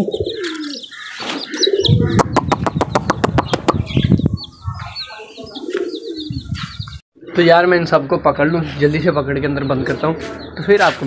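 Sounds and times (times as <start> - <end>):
pigeons cooing: 0.0 - 7.8
chicks peeping: 0.0 - 11.0.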